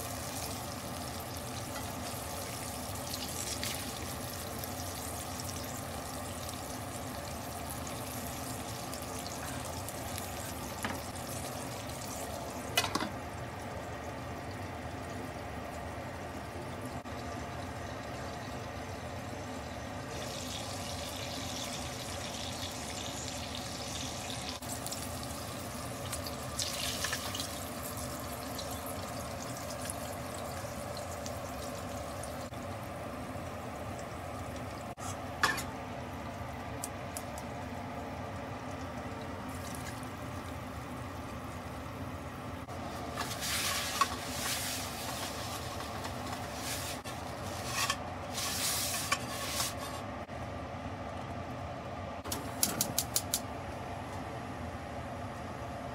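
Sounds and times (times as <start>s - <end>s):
meat juices sizzling in a frying pan: 0.0s - 13.0s, 20.0s - 32.6s
paper towel rubbing a pan: 43.1s - 50.1s.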